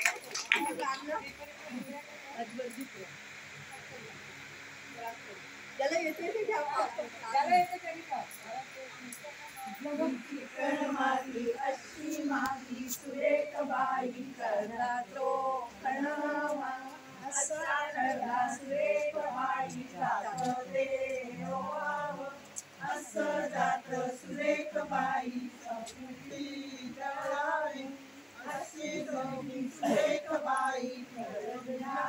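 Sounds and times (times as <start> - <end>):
women singing a folk song: 9.3 - 32.0.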